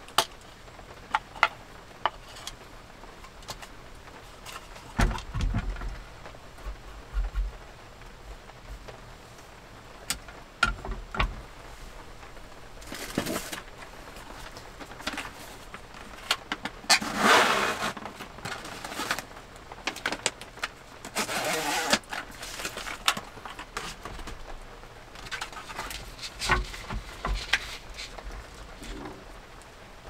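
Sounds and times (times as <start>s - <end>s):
paper tearing and rustling: 16.9s - 19.3s, 19.9s - 24.1s.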